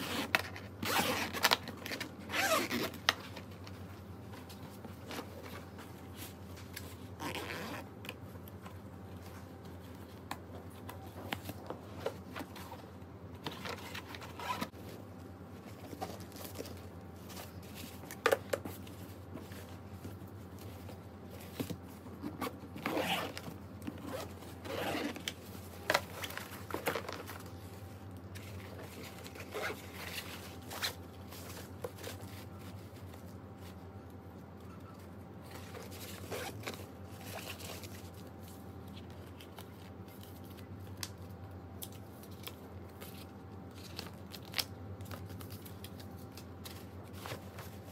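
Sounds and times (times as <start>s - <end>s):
zippers and fabric rustling: 0.0s - 3.1s, 7.1s - 7.9s, 13.7s - 14.8s, 22.1s - 25.4s, 28.7s - 31.0s, 35.5s - 38.0s.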